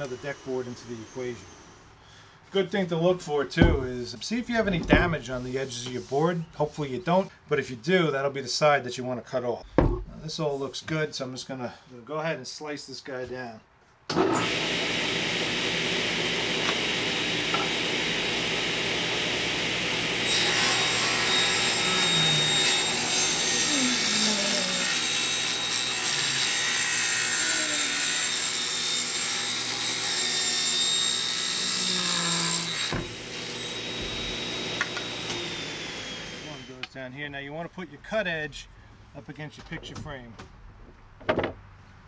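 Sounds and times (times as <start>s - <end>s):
table saw cutting a board: 0.0s - 1.9s, 14.1s - 36.9s.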